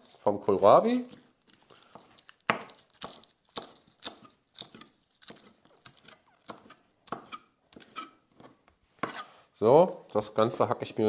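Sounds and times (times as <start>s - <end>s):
knife slicing on cutting board: 9.0s - 9.4s.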